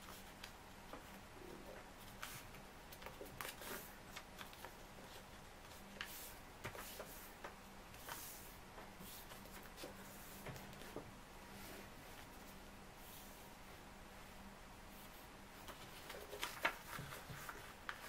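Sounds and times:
paper rustling and crinkling: 2.0s - 11.0s, 15.6s - 18.0s.

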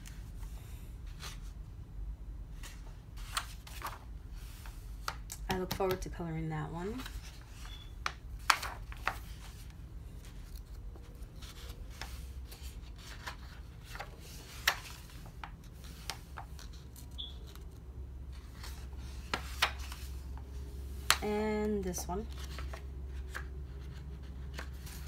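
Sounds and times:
paper pages rustling: 2.6s - 5.2s, 8.4s - 20.4s, 22.2s - 25.0s.

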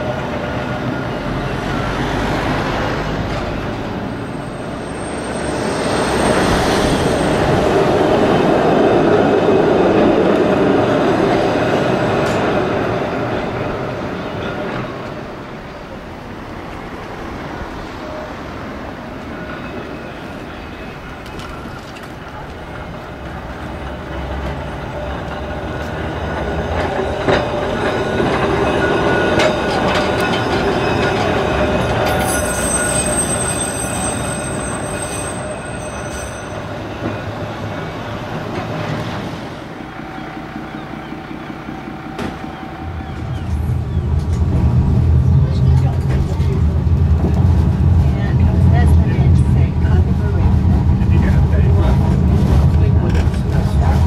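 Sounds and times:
tram wheels squealing on rails: 0.0s - 48.3s.

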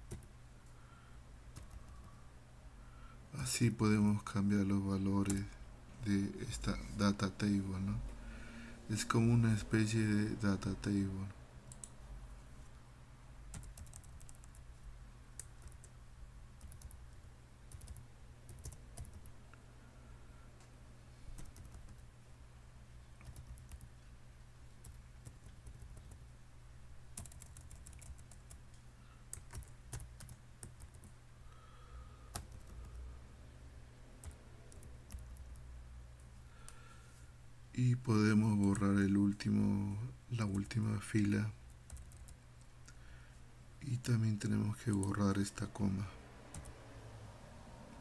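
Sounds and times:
keyboard typing: 0.0s - 0.3s, 1.5s - 2.2s, 11.7s - 12.0s, 13.5s - 14.7s, 15.4s - 16.0s, 16.6s - 19.4s, 21.3s - 22.1s, 23.2s - 23.9s, 24.8s - 26.2s, 27.2s - 28.7s, 29.3s - 31.2s, 32.3s - 33.0s, 34.2s - 35.7s, 41.9s - 42.4s, 46.5s - 46.7s
steady low hum: 0.0s - 48.0s.

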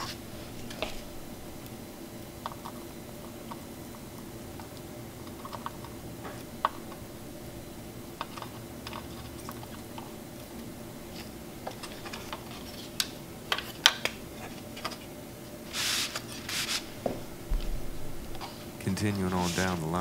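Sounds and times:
board brushing scrape: 15.7s - 17.1s, 17.8s - 20.0s.

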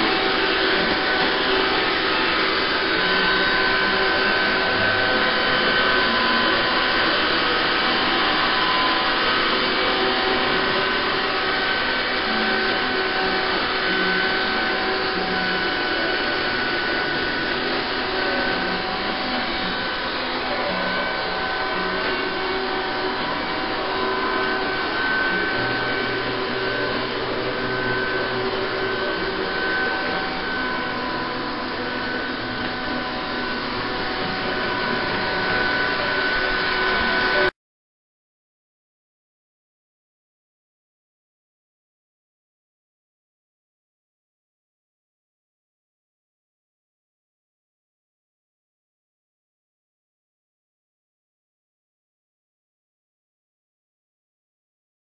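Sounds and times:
robot vacuum motor whirring: 0.0s - 37.5s.

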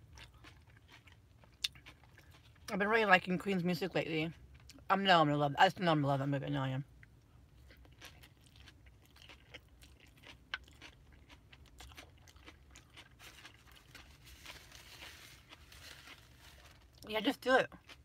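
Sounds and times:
chewing food: 0.0s - 2.8s, 7.0s - 17.1s, 17.7s - 18.0s.

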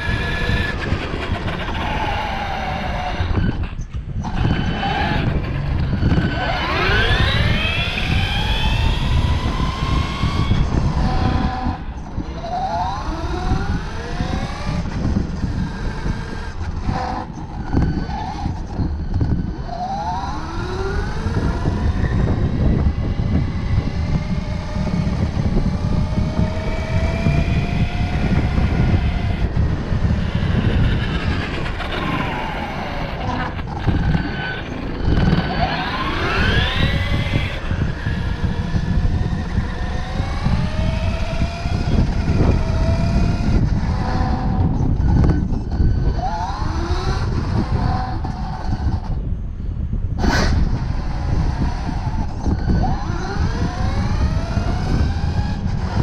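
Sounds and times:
tyres rumbling on rough paving: 0.0s - 56.0s
toy car motor whining: 4.2s - 11.8s, 24.4s - 49.2s.

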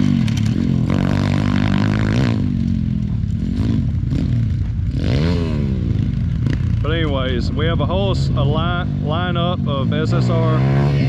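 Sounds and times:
small motorbike engine revving: 9.9s - 11.0s.

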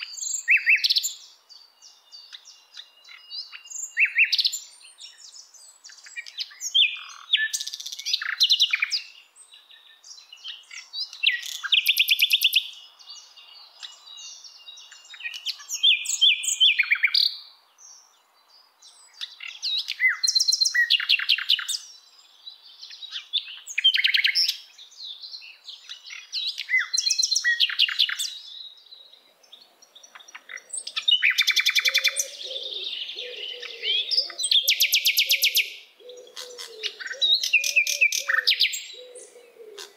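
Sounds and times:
songbird chirping and trilling: 0.0s - 39.9s
faint lower bird warbling: 30.1s - 39.9s.

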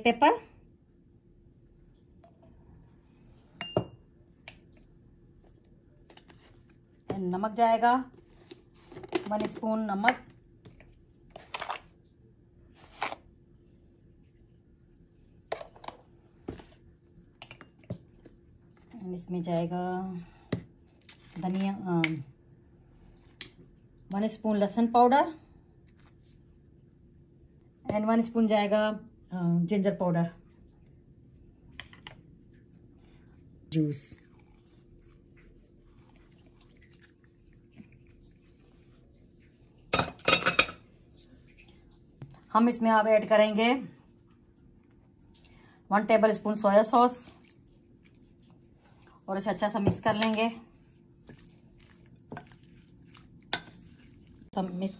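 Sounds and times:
faint steady hum: 0.0s - 54.9s
utensil striking glass bowl: 3.6s - 4.0s.

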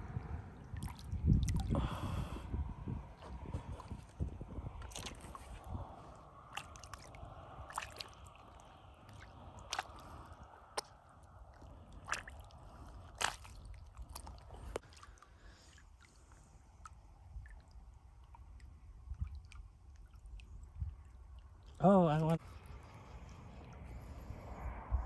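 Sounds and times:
water sloshing and dripping: 0.0s - 24.8s
low rumble: 22.4s - 25.0s.

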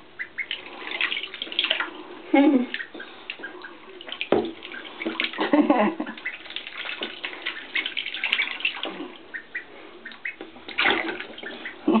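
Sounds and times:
water splashing in plastic tub: 0.4s - 12.0s.

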